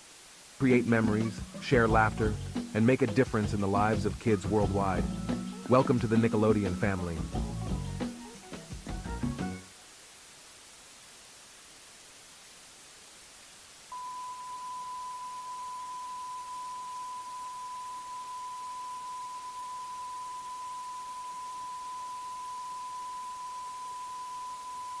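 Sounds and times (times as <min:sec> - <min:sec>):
videotape hiss: 0:00.0 - 0:25.0
electronic test tone: 0:13.9 - 0:25.0.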